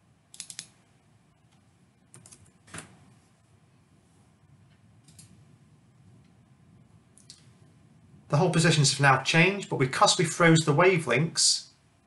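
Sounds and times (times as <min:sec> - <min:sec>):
faint keyboard keystrokes: 0:01.5 - 0:03.0, 0:04.6 - 0:05.4.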